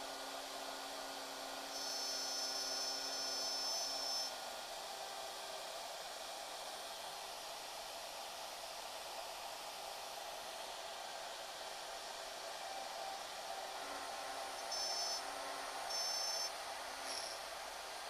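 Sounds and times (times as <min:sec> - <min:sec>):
router whooshing hiss: 0:00.0 - 0:18.0
high-pitched whines: 0:01.8 - 0:04.4, 0:12.4 - 0:18.0.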